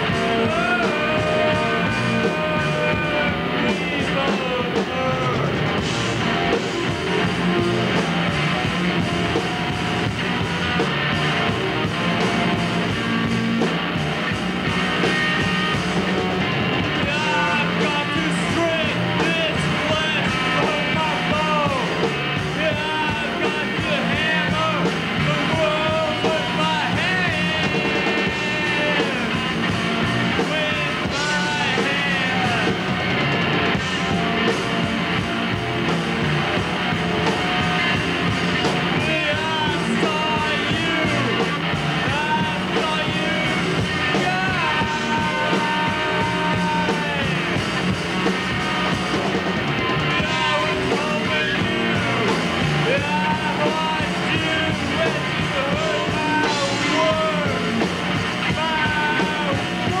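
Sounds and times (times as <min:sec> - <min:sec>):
man shouting and singing: 0:00.0 - 0:05.7, 0:17.0 - 0:33.1, 0:38.6 - 0:47.7, 0:49.9 - 1:00.0
punk rock band playing: 0:00.0 - 1:00.0.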